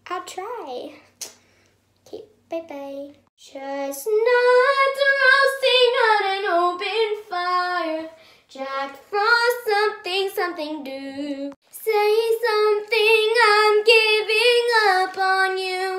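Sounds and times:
girl singing unaccompanied: 3.4 - 15.9.

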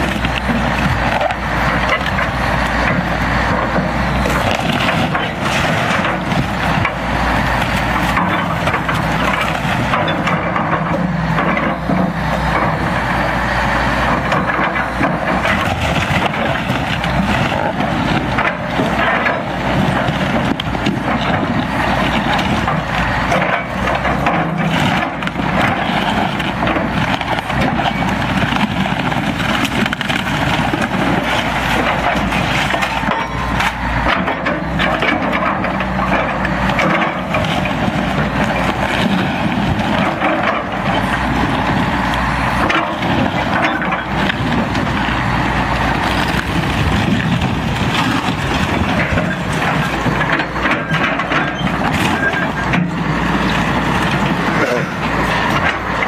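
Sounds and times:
excavator diesel engine running: 0.0 - 56.0
boat hull cracking and crunching: 14.1 - 56.0.

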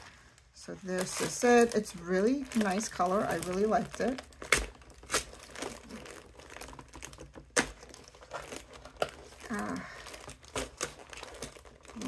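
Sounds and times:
paper rustling and tearing: 0.0 - 12.0.

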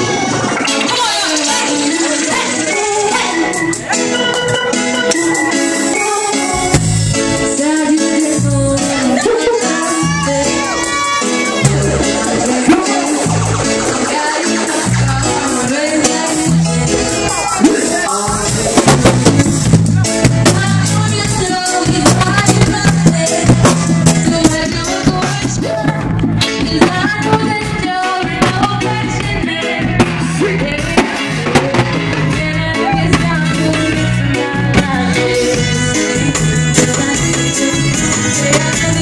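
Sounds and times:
bass line: 0.0 - 39.0
drum kit: 0.0 - 39.0
person singing: 0.0 - 39.0.

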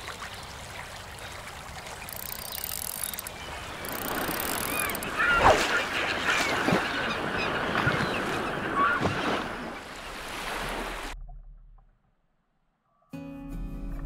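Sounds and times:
bird calls: 0.0 - 10.4
surf washing: 0.0 - 11.2.

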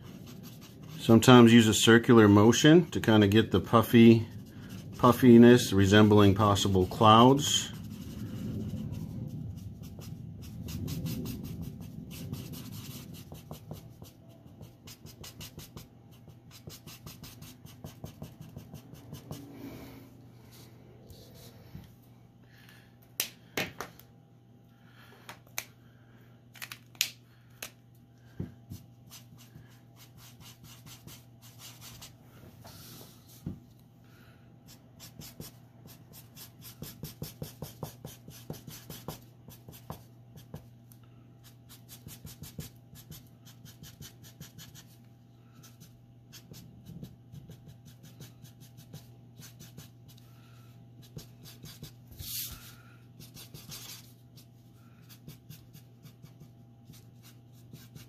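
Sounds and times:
steady low hum: 0.0 - 58.0
marker nib rubbing on paper: 35.0 - 40.6, 41.4 - 44.9, 55.0 - 58.0.

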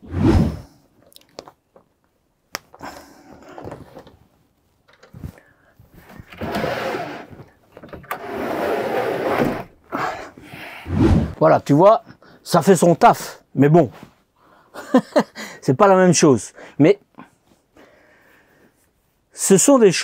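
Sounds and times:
curtain fabric rustling: 3.4 - 9.7
curtain runners sliding on rail: 6.1 - 9.8.

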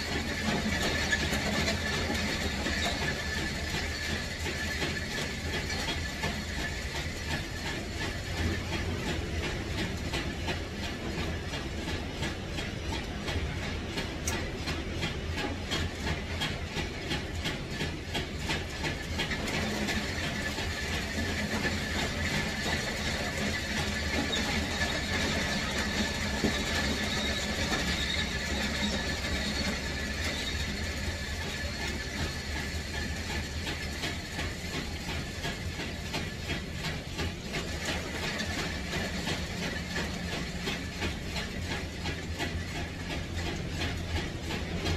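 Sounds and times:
fast even clatter: 0.0 - 44.9
machine running with low rumble: 0.0 - 44.9.

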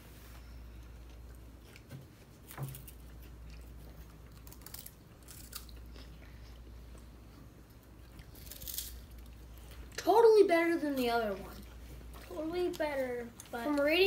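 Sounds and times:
low steady hum: 0.0 - 14.0
children chewing crunchy snack: 0.6 - 10.0.

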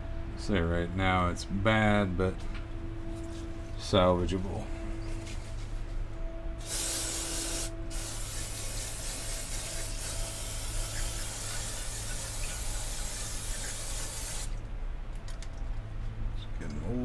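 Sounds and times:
low hum: 0.0 - 17.0
aerosol spray hissing: 6.6 - 14.6.

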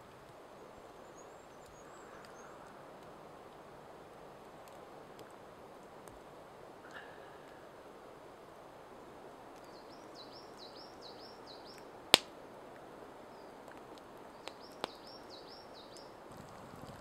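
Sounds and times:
steady outdoor hiss: 0.0 - 17.0
faint clicks: 1.5 - 3.6, 13.6 - 15.1
sharp crack: 12.1 - 12.4, 13.7 - 15.0
songbird whistling: 14.4 - 16.2.

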